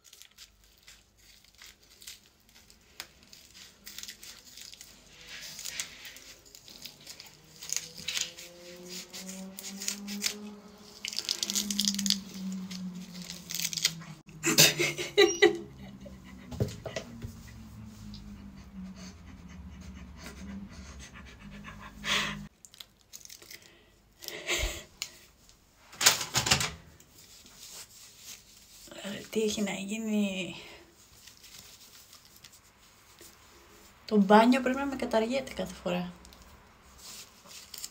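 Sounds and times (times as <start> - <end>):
latex crinkling and tearing: 0.0 - 14.3, 22.5 - 25.3, 27.1 - 29.7, 30.9 - 33.3, 36.2 - 37.9
low hum: 6.6 - 22.5
sliding whine-like tones: 7.4 - 14.2, 15.4 - 22.1.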